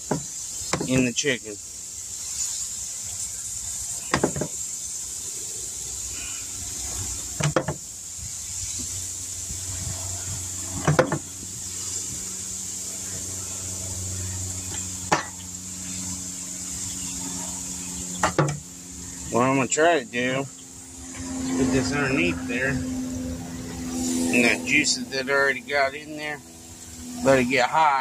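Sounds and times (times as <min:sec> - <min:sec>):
grill hissing: 0:00.0 - 0:28.0.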